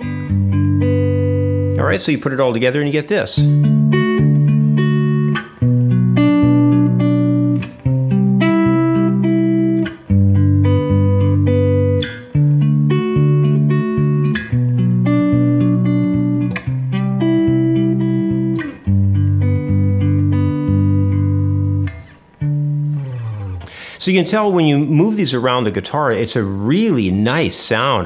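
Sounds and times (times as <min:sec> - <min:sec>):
fingerpicked clean electric guitar: 0:00.0 - 0:28.0.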